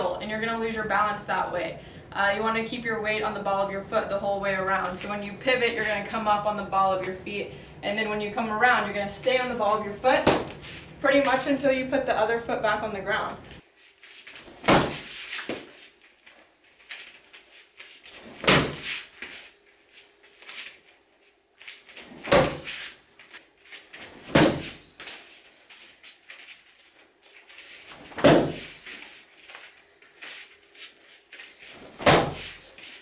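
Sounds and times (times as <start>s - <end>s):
kicks smacking foam paddle: 10.2s - 10.6s, 14.5s - 15.7s, 18.2s - 19.3s, 22.0s - 22.8s, 24.2s - 25.1s, 28.1s - 29.0s, 32.0s - 32.8s
feet thudding on mat: 14.1s - 15.9s, 16.9s - 19.5s, 21.9s - 23.4s, 24.0s - 25.8s, 27.7s - 29.7s, 30.3s - 33.0s.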